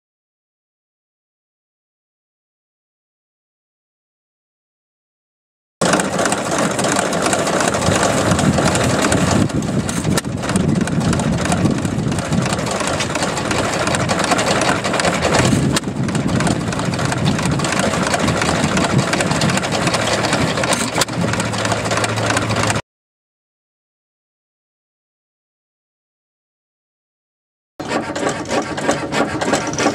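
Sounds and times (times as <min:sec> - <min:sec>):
stationary gas engine running: 0:05.8 - 0:22.8, 0:27.8 - 0:29.9.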